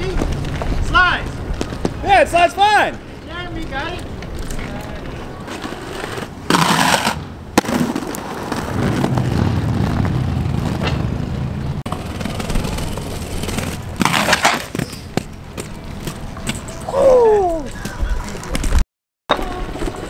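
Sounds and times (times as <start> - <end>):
inline skates rolling on pavement: 0.0 - 20.0
skates scraping on ledge: 4.6 - 16.8.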